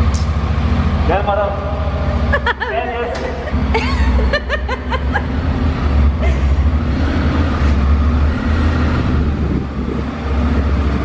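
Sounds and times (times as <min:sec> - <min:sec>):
motorcycle engine running: 0:03.2 - 0:11.0.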